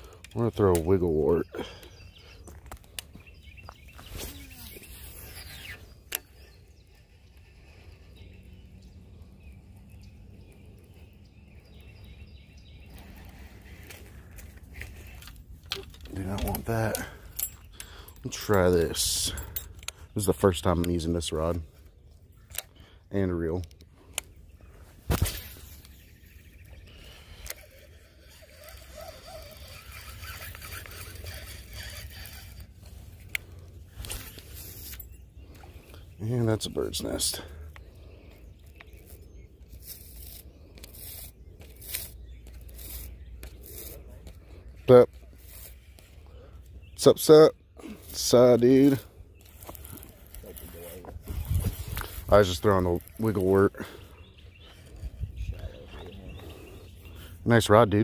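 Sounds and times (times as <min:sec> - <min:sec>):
faint outdoor background: 0:00.0 - 0:58.0
fishing line whirring off reel: 0:27.2 - 0:33.3
wind rumbling on microphone: 0:51.0 - 0:52.3, 0:54.2 - 0:57.2.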